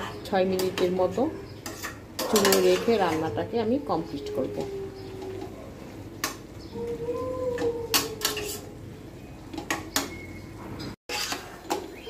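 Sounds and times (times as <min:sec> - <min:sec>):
spatula scraping a metal pan: 0:00.0 - 0:03.4, 0:07.9 - 0:08.8, 0:11.1 - 0:12.0.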